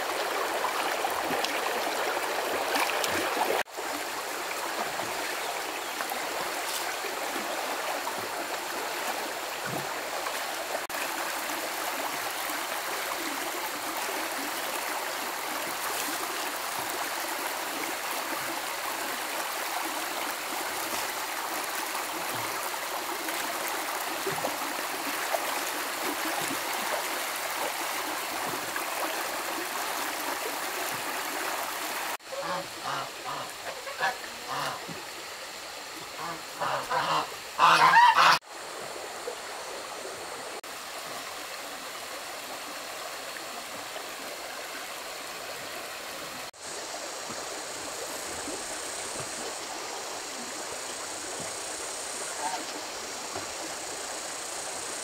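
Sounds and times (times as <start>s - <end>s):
stream water flowing: 0.0s - 55.0s.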